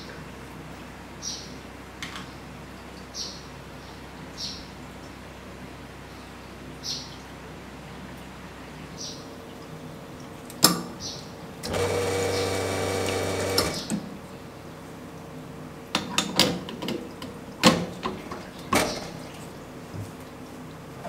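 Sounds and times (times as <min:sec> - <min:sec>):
espresso machine pump running: 0:11.6 - 0:14.0.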